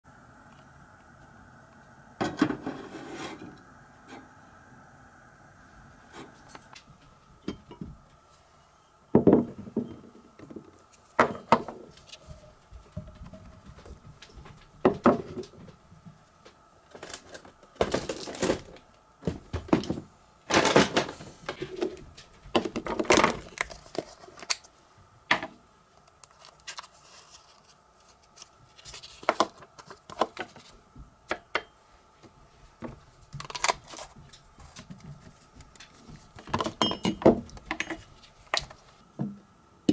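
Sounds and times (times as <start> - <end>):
plastic parts knocking and clattering: 9.2 - 11.8, 16.9 - 24.2, 33.4 - 39.4.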